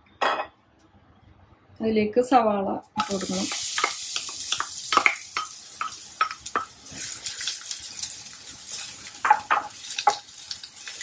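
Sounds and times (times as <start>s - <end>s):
onion sizzling in pan: 3.0s - 11.0s
wood clacking on bowl and pan: 3.0s - 11.0s.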